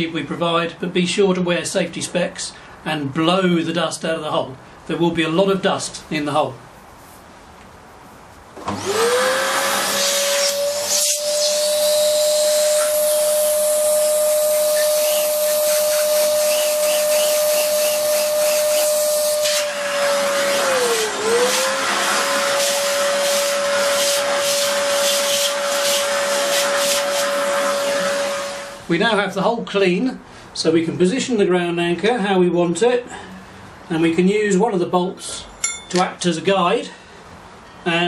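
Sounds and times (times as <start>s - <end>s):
vacuum cleaner motor whine: 8.6s - 28.9s.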